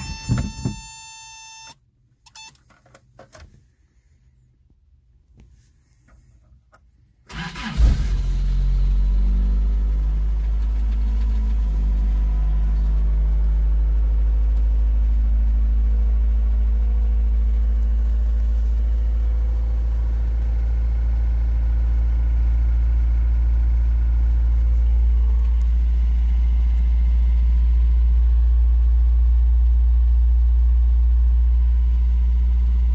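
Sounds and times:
engine cranking: 7.3 - 8.2
engine fast idle: 7.3 - 14.1.

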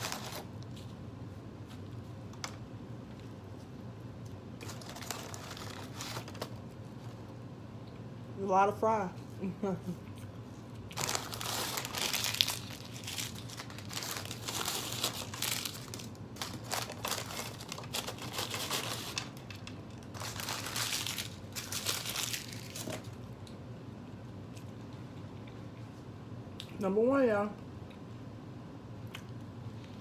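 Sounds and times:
paper packaging crinkling: 0.0 - 1.0, 4.6 - 7.3, 10.9 - 23.2.

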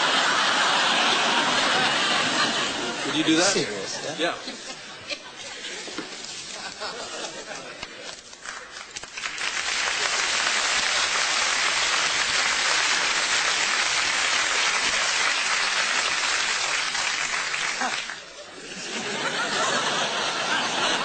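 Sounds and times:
audience applauding: 7.8 - 18.4.

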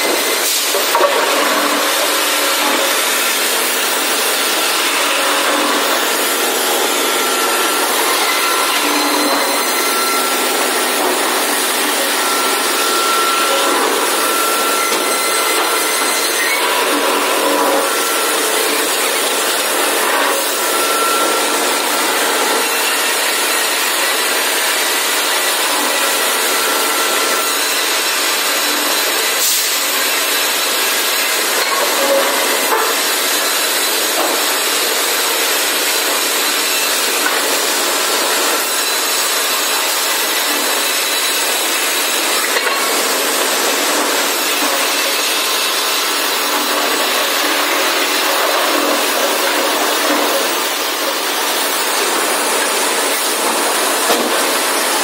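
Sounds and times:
band saw cutting log: 0.0 - 55.0.

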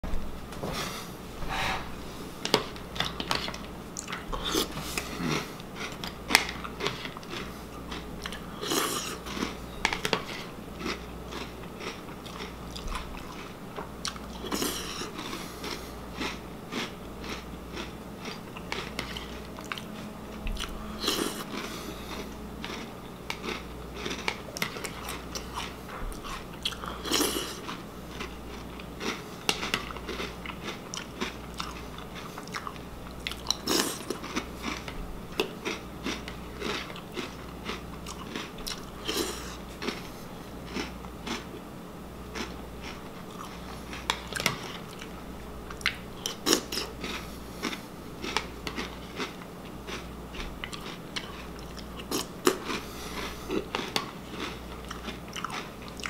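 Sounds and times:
chewing crunchy cereal: 2.4 - 41.6, 42.2 - 56.0.

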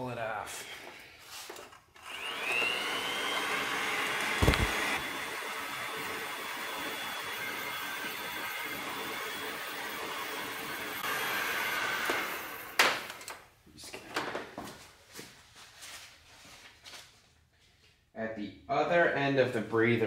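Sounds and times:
heat gun fan whine: 2.0 - 13.4.

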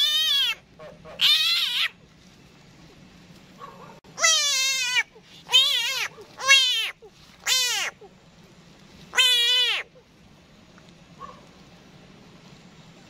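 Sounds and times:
frogs wavering distress cries: 0.0 - 2.0, 4.0 - 8.2, 9.1 - 10.2.

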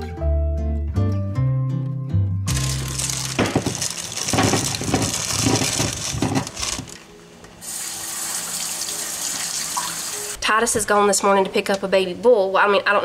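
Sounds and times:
potatoes clattering into colander: 2.5 - 7.0
tap running water: 7.6 - 10.4.

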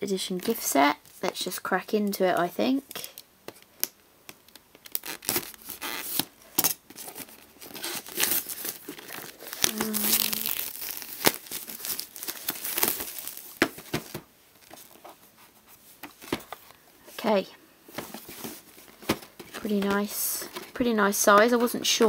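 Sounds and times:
packaging tearing and crinkling: 4.5 - 15.0.

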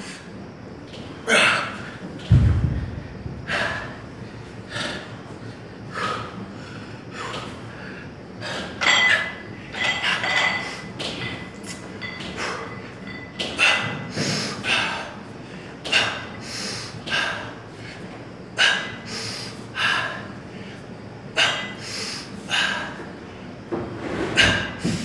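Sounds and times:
dull thud: 2.3 - 3.6.

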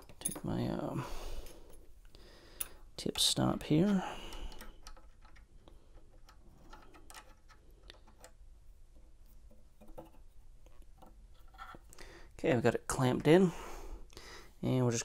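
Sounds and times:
small metal clicks and taps: 2.6 - 8.4.

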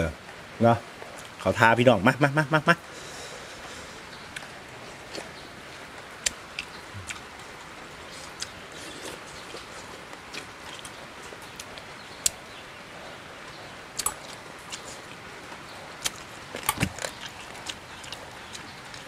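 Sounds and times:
steady background hiss: 0.0 - 19.0
man chewing: 2.9 - 12.4, 14.0 - 19.0
wet mouth clicks and smacks: 14.0 - 14.9.

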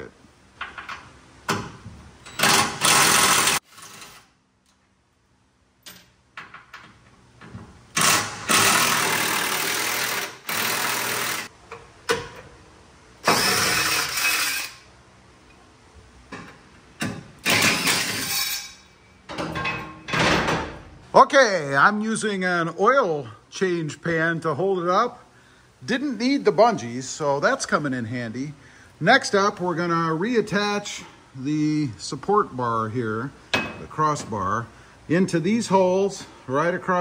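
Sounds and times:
impact wrench bursts: 2.2 - 4.4, 7.9 - 11.5, 13.2 - 14.9, 17.4 - 18.9.

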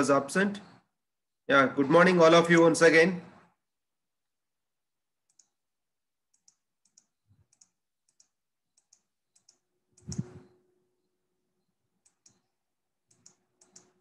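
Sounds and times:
faint computer clicks: 5.3 - 5.6, 6.3 - 10.5, 12.0 - 14.0.

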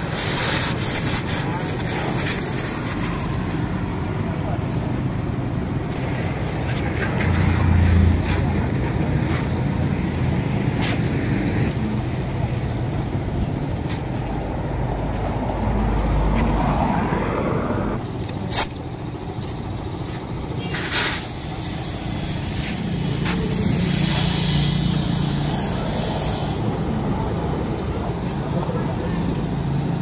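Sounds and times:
compressed air hissing into tyre: 0.0 - 4.0, 18.4 - 18.8, 20.5 - 27.4.

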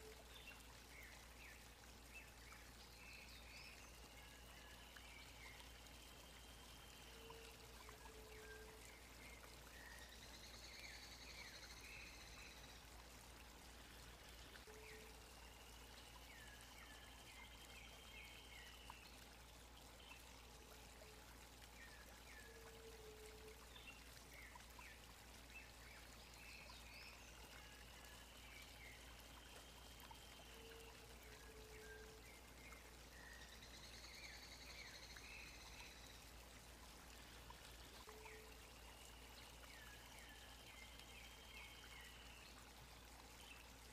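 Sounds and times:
stream running: 0.0 - 43.9.

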